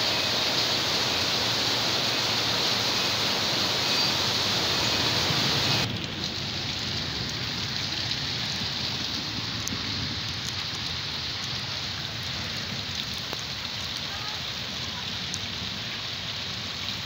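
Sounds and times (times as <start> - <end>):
heavy rain on a flooded street: 0.0 - 17.0
raindrops ticking: 3.8 - 17.0.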